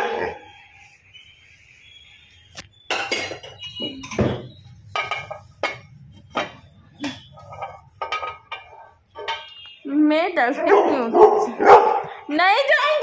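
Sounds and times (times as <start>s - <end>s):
steel bowls and utensils clattering: 2.9s - 9.8s.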